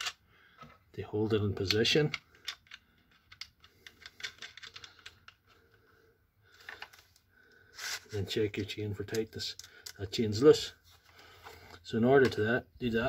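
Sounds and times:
metal clicking on plastic: 0:01.6 - 0:05.6.

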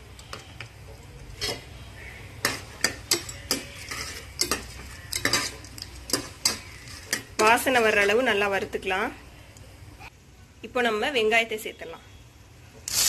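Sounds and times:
faint sizzle: 0:00.0 - 0:13.0
metal ladle scraping a pot: 0:01.3 - 0:08.3.

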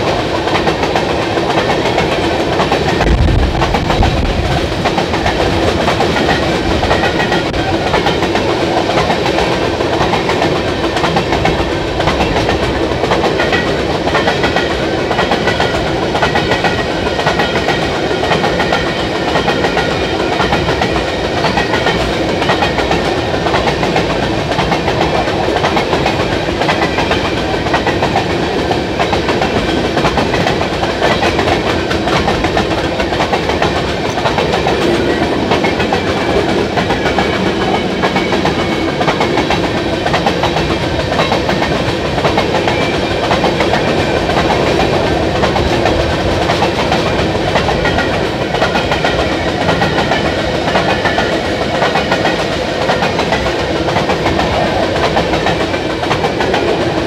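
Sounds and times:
freight train rolling past: 0:00.0 - 0:57.0
steel wheels clattering on rails: 0:00.0 - 0:57.0.

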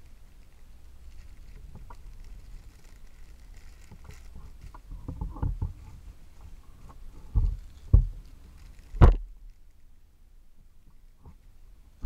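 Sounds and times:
plastic bags crinkling: 0:00.0 - 0:05.9, 0:07.0 - 0:09.9
small crackles: 0:00.0 - 0:12.0.

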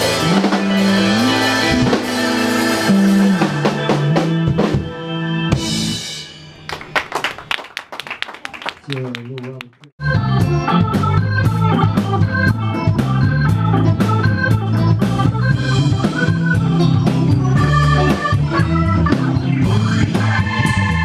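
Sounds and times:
electric guitar: 0:00.0 - 0:06.9, 0:10.0 - 0:21.0
drum kit hits: 0:00.0 - 0:07.1
sustained organ-like chords: 0:00.0 - 0:07.4, 0:10.0 - 0:21.0.

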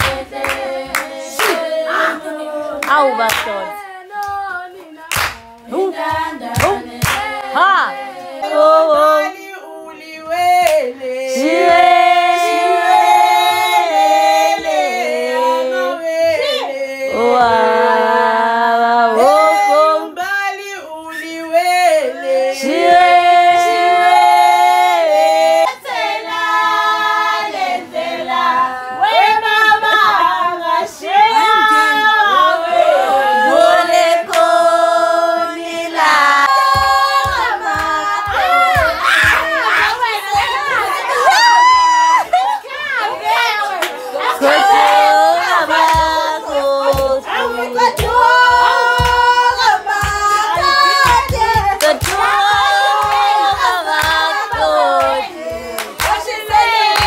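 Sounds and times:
women singing together: 0:00.0 - 0:57.0.

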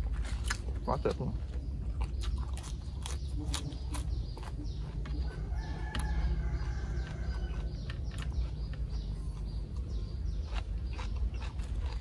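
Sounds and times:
rooster crowing: 0:05.3 - 0:07.8.

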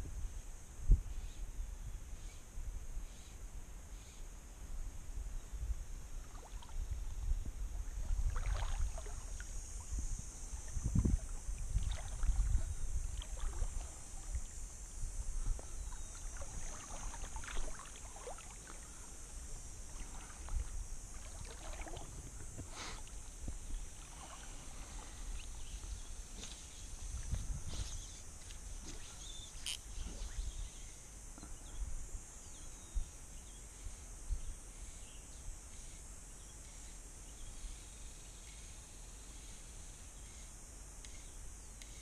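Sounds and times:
steady high hiss: 0:00.0 - 0:42.0
water lapping against hull: 0:06.2 - 0:07.0, 0:07.9 - 0:09.5, 0:10.4 - 0:14.6, 0:15.4 - 0:19.2, 0:19.8 - 0:25.4
water splashing and dripping: 0:08.2 - 0:09.5, 0:10.7 - 0:14.4, 0:16.3 - 0:18.8, 0:20.0 - 0:22.2.

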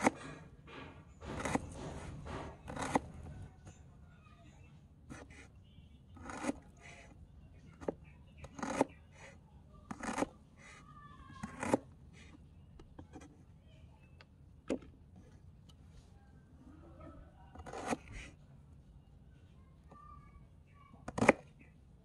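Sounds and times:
knife slicing onion on wood: 0:01.2 - 0:03.2, 0:06.2 - 0:06.8, 0:08.5 - 0:08.9, 0:09.9 - 0:10.3, 0:11.4 - 0:11.9.

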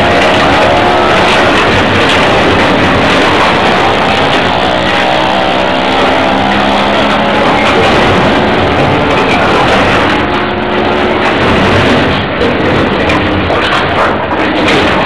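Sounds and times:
metal grinding screech: 0:00.0 - 0:11.5
excavator engine under load: 0:00.0 - 0:15.0.

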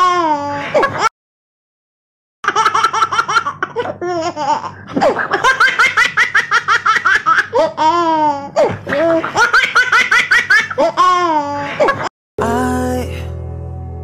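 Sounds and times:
baby laughing: 0:00.0 - 0:01.1, 0:02.5 - 0:12.1.

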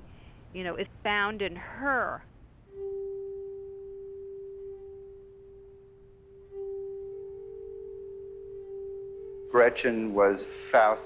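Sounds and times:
bell-like chime tone: 0:02.6 - 0:11.0.

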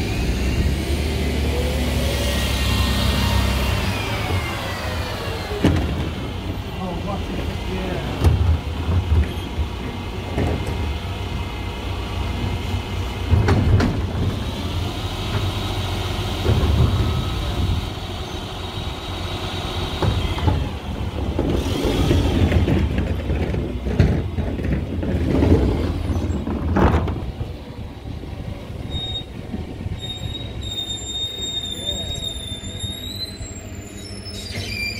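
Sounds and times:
high engine whine: 0:00.0 - 0:34.7
diesel engine rumbling: 0:00.0 - 0:34.9
wheelie bins clunking and rattling: 0:05.3 - 0:11.2, 0:12.3 - 0:14.5, 0:15.2 - 0:18.0, 0:19.9 - 0:30.3.

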